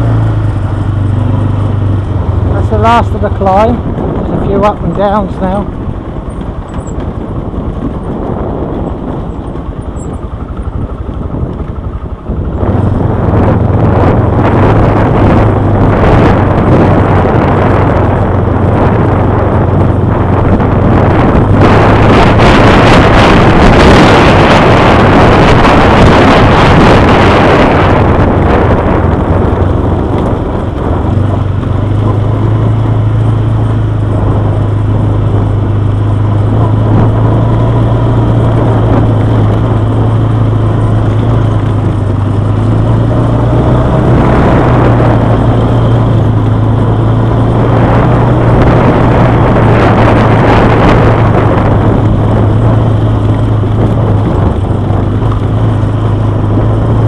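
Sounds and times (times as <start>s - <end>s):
quad bike engine running: 0.0s - 57.0s
wind noise on microphone: 0.0s - 57.0s.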